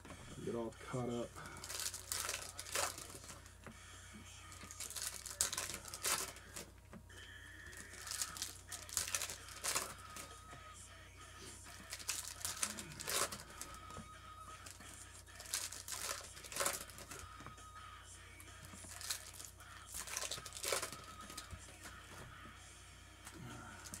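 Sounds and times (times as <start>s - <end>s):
foil wrappers tearing and crinkling: 1.6s - 3.4s, 4.6s - 6.7s, 7.7s - 10.3s, 11.7s - 13.8s, 15.4s - 17.2s, 18.8s - 21.9s.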